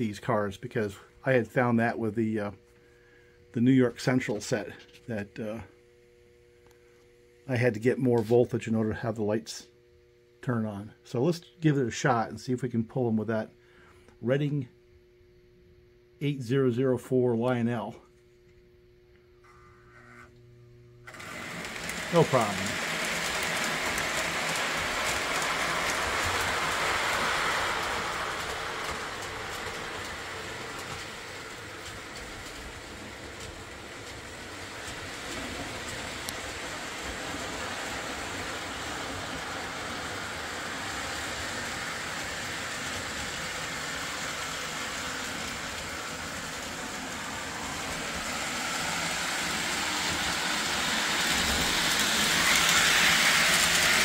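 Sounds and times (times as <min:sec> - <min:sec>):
train motor hum: 0:19.1 - 0:54.0
model train wheels rattling: 0:21.1 - 0:54.0.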